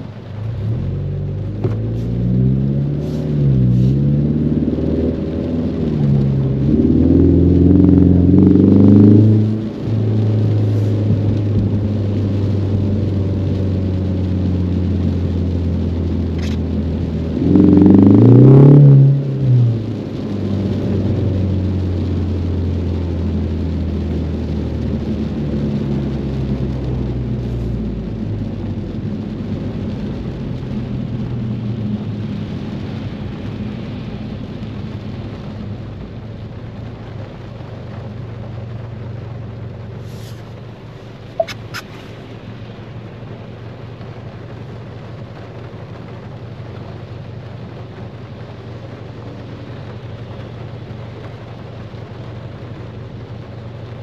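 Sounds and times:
road noise: 0.0 - 54.0
car engine accelerating: 0.2 - 36.0.

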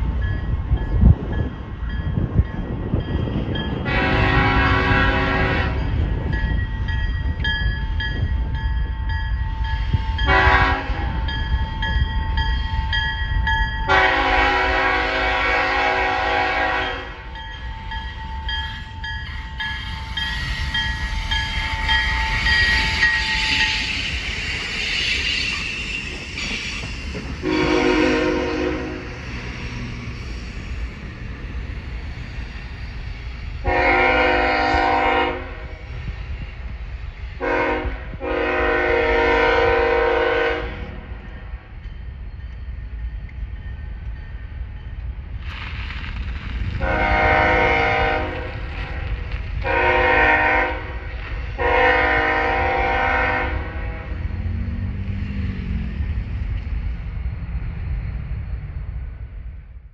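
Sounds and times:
trains running past: 0.0 - 59.9
multi-chime train horn: 3.7 - 6.2, 10.1 - 11.6, 13.8 - 19.8, 27.4 - 29.2, 33.6 - 35.8, 37.4 - 41.0, 46.8 - 49.0, 49.6 - 54.2.

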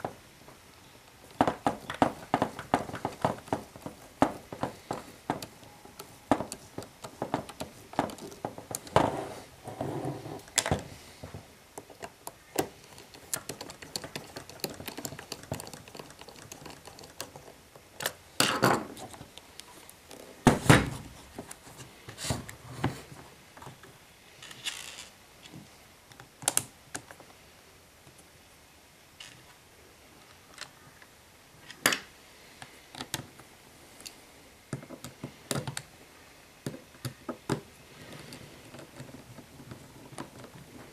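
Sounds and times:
plastic clicks and knocks: 1.3 - 9.2, 10.5 - 19.5.

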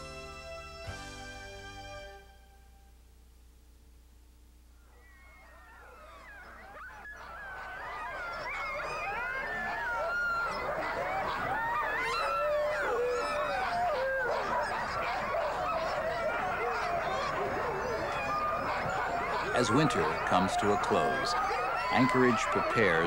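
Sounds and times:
sled dogs yelping and howling: 4.8 - 23.0.

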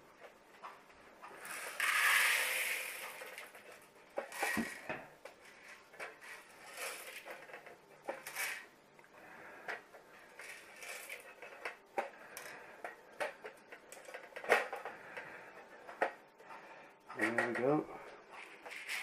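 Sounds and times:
coffee beans rattling: 1.4 - 4.9, 6.2 - 7.5, 10.4 - 11.6, 18.4 - 19.0.

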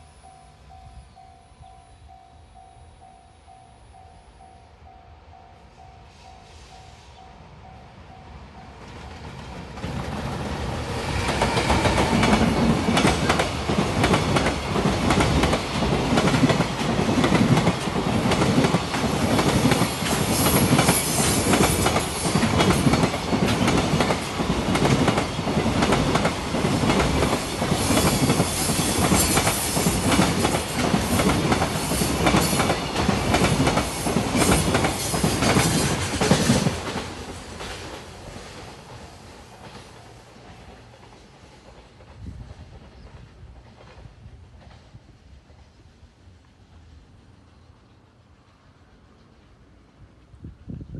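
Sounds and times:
train wheels clacking over rail joints: 9.0 - 45.0.

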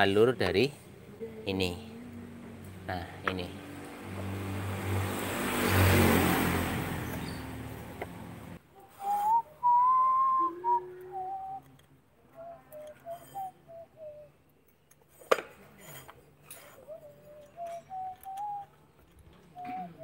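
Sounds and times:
person whistling slow tune: 9.0 - 11.8, 12.4 - 14.5, 16.8 - 18.8, 19.5 - 20.0.

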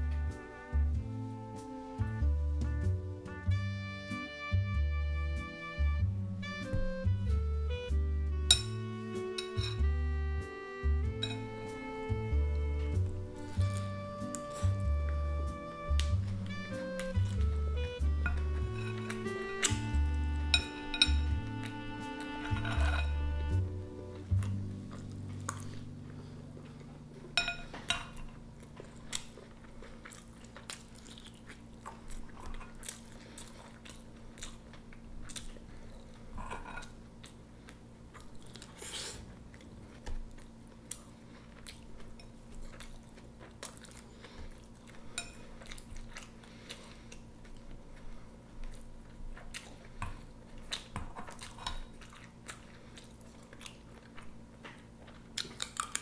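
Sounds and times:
utensils clinking on ceramic bowl: 9.4 - 9.8, 11.2 - 11.5, 18.2 - 19.1, 20.5 - 21.3, 22.5 - 23.2, 27.4 - 28.3
chewing: 12.8 - 19.9, 24.2 - 56.0.

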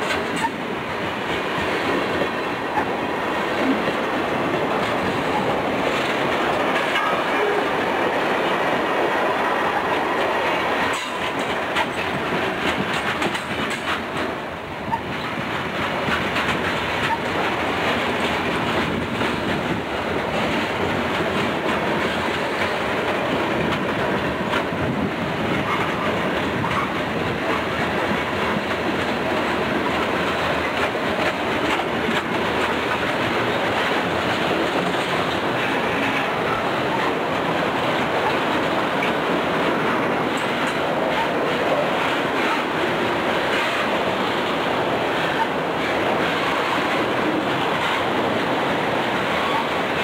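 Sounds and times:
steel wheels rumbling on rails: 0.0 - 50.0
wheels clattering over rail joints: 0.0 - 50.0.

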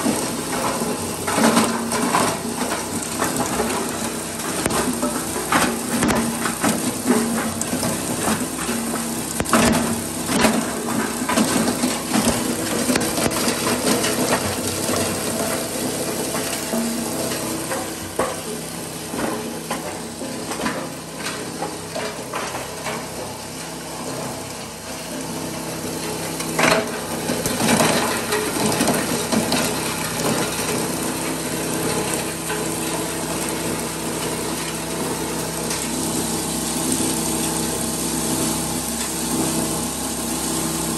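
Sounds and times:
machine motor hum: 23.3 - 40.9.

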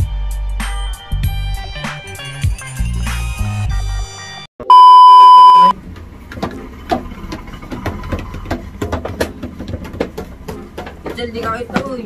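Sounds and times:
censor bleep tone: 4.6 - 5.7
sharp knocks and clatter: 6.0 - 12.0.

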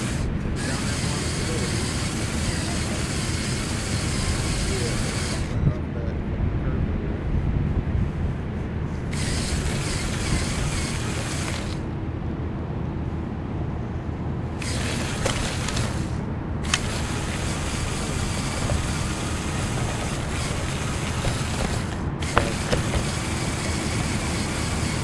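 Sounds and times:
toy car motors whirring: 0.0 - 5.6, 9.1 - 11.9, 14.6 - 25.0
plastic chassis rattling: 9.1 - 11.8, 14.6 - 25.0.

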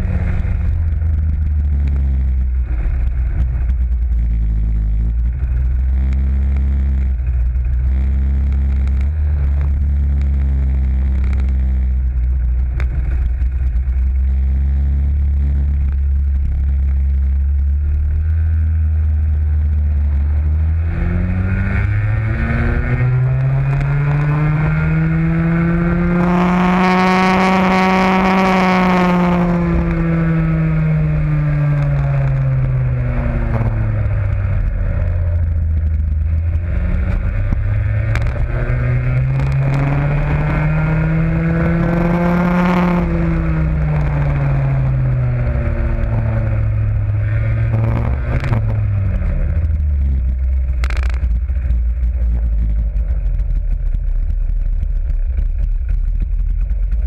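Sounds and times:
kart engine revving: 19.9 - 51.2.

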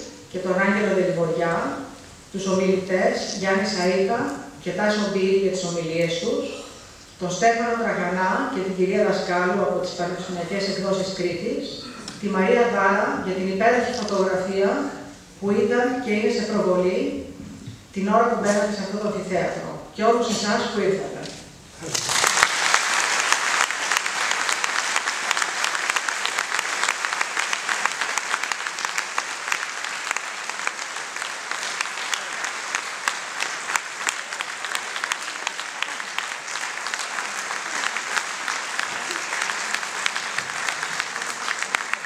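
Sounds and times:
audience applauding: 21.8 - 42.0.

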